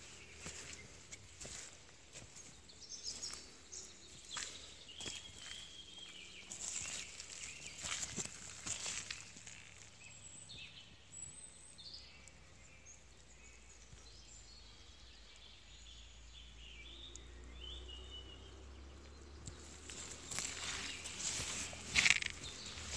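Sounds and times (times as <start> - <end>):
bird chirps: 2.4 - 22.9
scuffs: 19.6 - 22.9.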